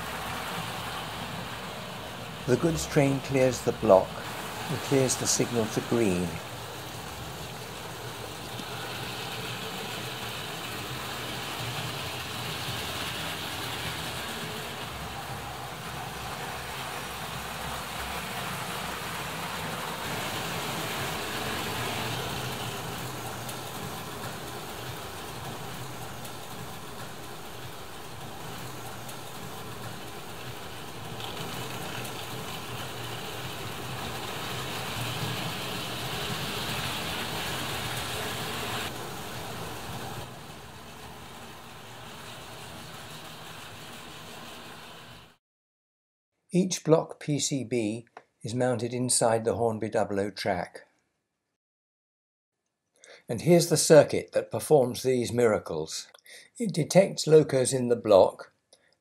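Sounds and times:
model train wheels on rail: 0:00.0 - 0:45.4.

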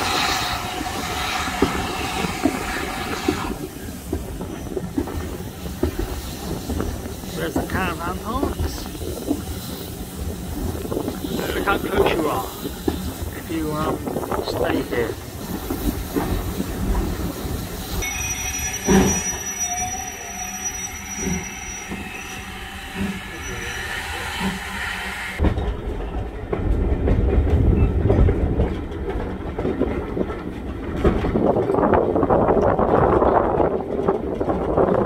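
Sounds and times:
wind buffeting microphone: 0:00.0 - 0:18.1, 0:21.9 - 0:35.0
train rumbling: 0:00.0 - 0:35.0
high steady squeal: 0:17.4 - 0:25.4.

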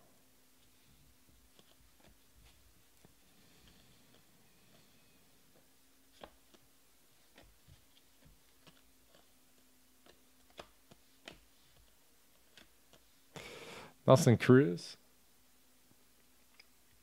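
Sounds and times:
faint steady hum: 0:00.0 - 0:17.0
cards being flipped: 0:01.4 - 0:03.2, 0:05.5 - 0:13.1.

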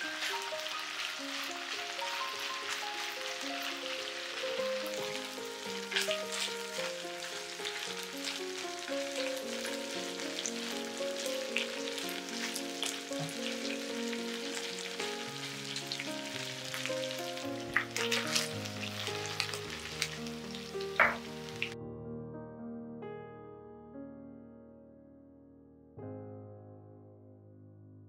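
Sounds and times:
fish sizzling in oil: 0:00.0 - 0:21.8
soft piano music: 0:00.0 - 0:28.0.

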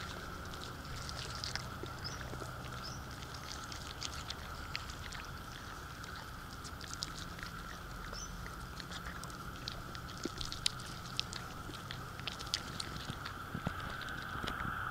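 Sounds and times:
faint hum: 0:00.0 - 0:14.9
kangaroo chewing pellets: 0:00.0 - 0:14.9.

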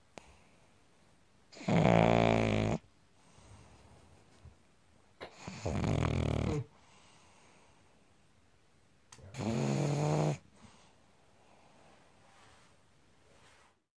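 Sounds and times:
dog snoring: 0:01.5 - 0:02.9, 0:05.2 - 0:06.7, 0:09.3 - 0:10.4.

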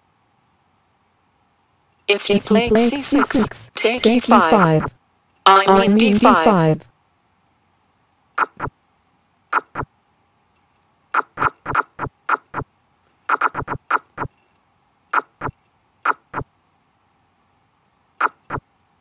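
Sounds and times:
chess move clicks: 0:08.4 - 0:08.7, 0:09.5 - 0:09.9, 0:10.6 - 0:12.6, 0:13.3 - 0:14.3, 0:15.2 - 0:16.4.

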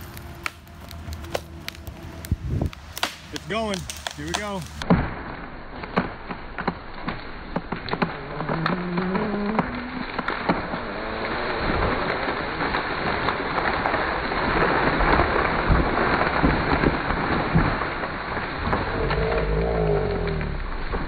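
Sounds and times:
leaves rushing through air: 0:00.0 - 0:21.0
tree crashing onto ground: 0:00.0 - 0:21.0
tree trunk cracking and snapping: 0:00.0 - 0:21.0.

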